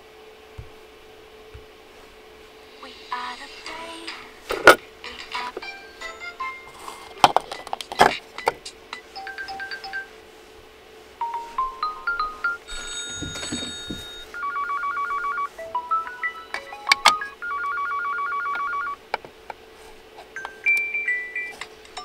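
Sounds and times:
electronic ringtone notes: 0:05.7 - 0:06.8, 0:08.4 - 0:10.2, 0:11.2 - 0:19.0, 0:20.4 - 0:22.0.

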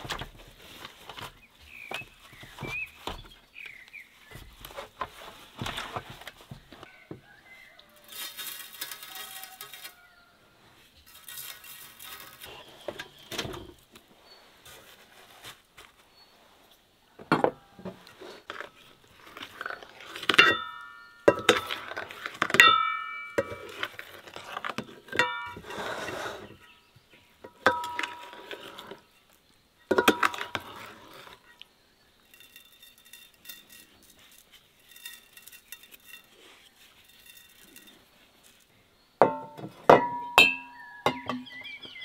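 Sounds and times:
metal clinking on enamel: 0:32.3 - 0:36.4, 0:37.0 - 0:38.0.

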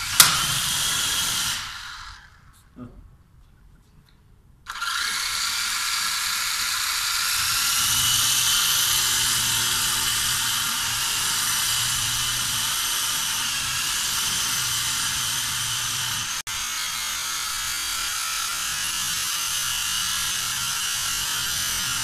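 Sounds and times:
small rotors whirring: 0:00.0 - 0:02.6, 0:04.7 - 0:22.0.

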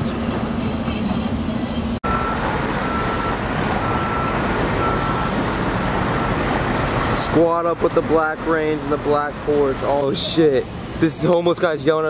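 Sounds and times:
street traffic: 0:00.0 - 0:12.0
high electronic beeps: 0:02.0 - 0:07.0.

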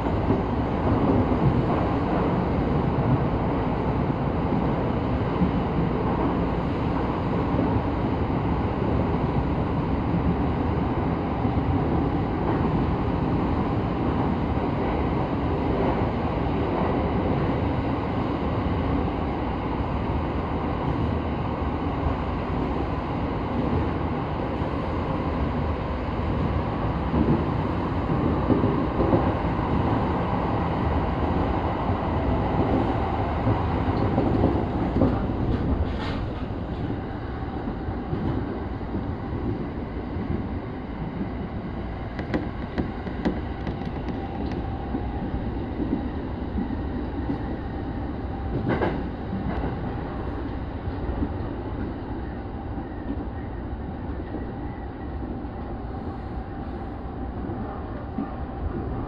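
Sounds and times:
train wheels rumbling on rail: 0:00.0 - 0:59.0.

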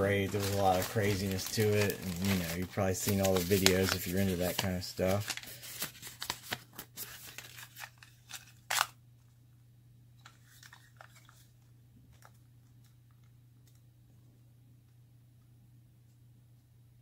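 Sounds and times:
packaging rustling and tapping: 0:00.2 - 0:08.8
packaging tearing: 0:00.2 - 0:09.0.

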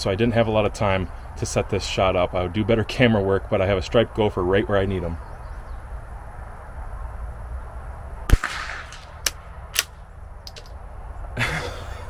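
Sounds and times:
rifle shot crack: 0:08.3 - 0:10.0
light clicks: 0:09.2 - 0:10.8.

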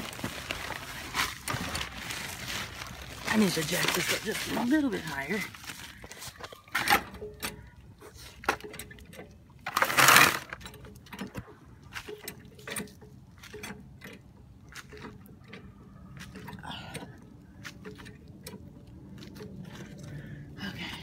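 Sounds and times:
loud scraping rustle: 0:00.0 - 0:06.4, 0:09.7 - 0:10.6.

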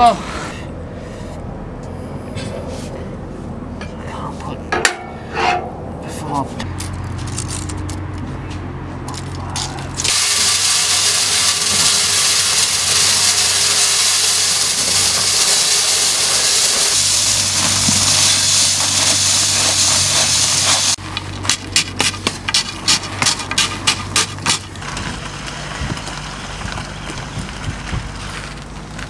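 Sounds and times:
low engine-like hum: 0:00.0 - 0:10.0
gravel pouring hiss: 0:09.2 - 0:21.3, 0:22.6 - 0:29.0.

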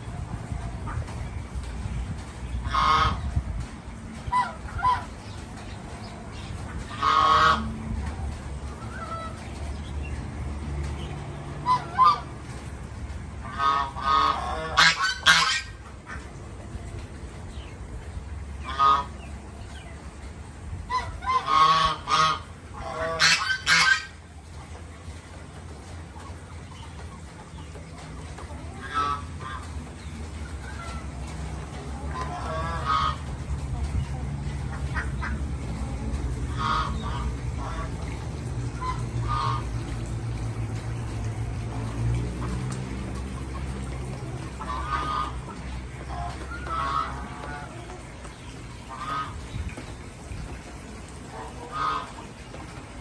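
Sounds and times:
geese honking: 0:02.6 - 0:03.3, 0:06.8 - 0:07.8, 0:11.6 - 0:12.3, 0:13.4 - 0:16.3, 0:18.6 - 0:19.2, 0:20.9 - 0:24.3, 0:28.6 - 0:33.5, 0:34.7 - 0:39.9, 0:44.3 - 0:49.6, 0:51.2 - 0:53.0.

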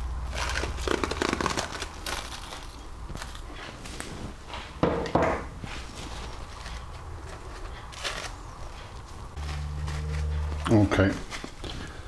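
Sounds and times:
cling film crinkling: 0:00.0 - 0:04.0.

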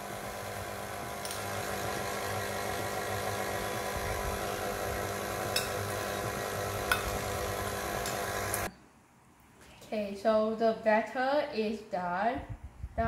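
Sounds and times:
electric stand mixer running: 0:00.0 - 0:08.7.

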